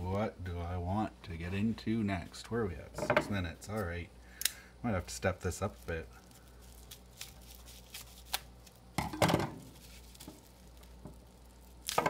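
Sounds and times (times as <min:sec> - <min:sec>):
bubble wrap crinkling: 0:04.9 - 0:12.0
tape peeling: 0:05.6 - 0:08.9, 0:09.6 - 0:12.0.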